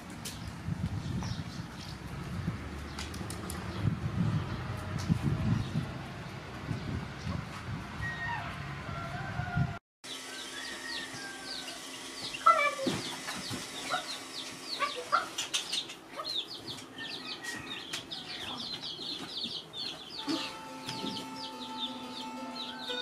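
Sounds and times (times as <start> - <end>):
small birds chirping: 0.2 - 4.8, 10.1 - 23.0
chickens clucking and squawking: 8.1 - 23.0
held musical notes: 20.1 - 23.0.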